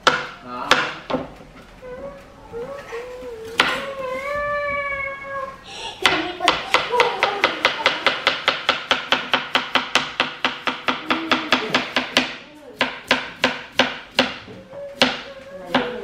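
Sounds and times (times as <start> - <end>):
knife chopping on plastic board: 0.0 - 1.3, 6.0 - 16.0.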